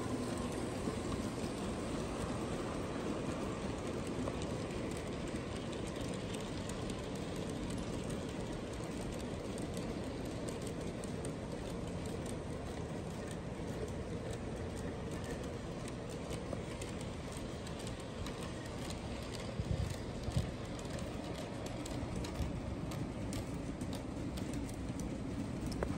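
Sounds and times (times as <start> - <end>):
model train wheels rumbling: 0.0 - 25.9.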